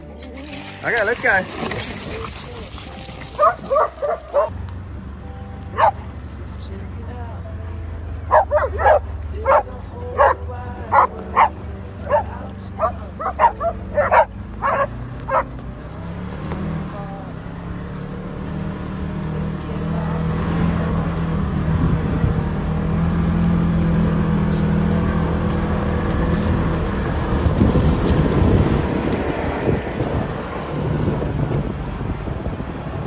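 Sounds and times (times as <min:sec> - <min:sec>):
utility vehicle engine running: 0:00.0 - 0:33.0
dog barks: 0:03.4 - 0:04.5, 0:05.7 - 0:06.0, 0:08.3 - 0:15.6
wind rumble: 0:20.0 - 0:33.0.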